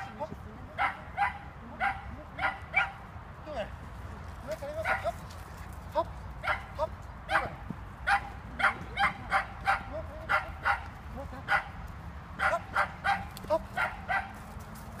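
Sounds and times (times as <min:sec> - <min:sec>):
dog barking sharply: 0:00.8 - 0:03.0, 0:06.4 - 0:10.9, 0:12.4 - 0:14.4.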